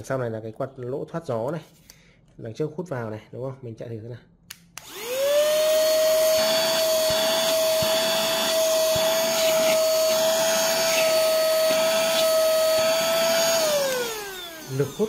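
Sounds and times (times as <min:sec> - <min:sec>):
handheld vacuum cleaner motor whine: 0:04.8 - 0:15.0.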